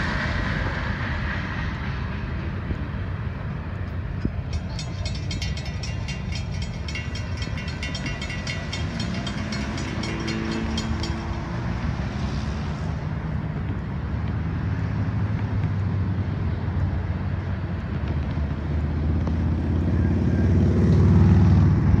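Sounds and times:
low vehicle rumble: 0.0s - 22.0s
crossing bell ringing: 4.4s - 13.0s.

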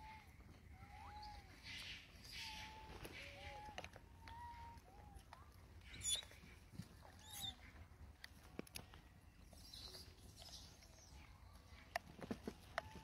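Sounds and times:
monkey high squeaks: 6.0s - 6.2s.

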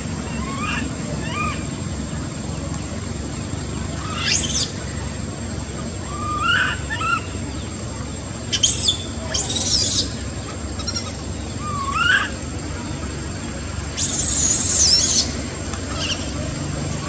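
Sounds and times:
monkey screaming: 0.2s - 1.7s, 4.0s - 4.9s, 6.0s - 7.4s, 8.5s - 12.4s, 13.9s - 16.4s
monkey squealing and whimpering: 0.3s - 1.6s, 4.0s - 4.8s, 6.1s - 7.4s, 8.5s - 12.4s, 14.0s - 16.4s.

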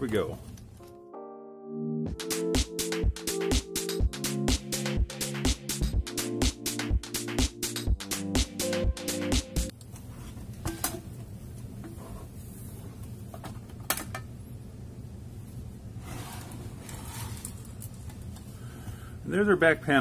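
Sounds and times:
electronic music: 1.0s - 9.7s
short scrape: 16.0s - 17.6s.

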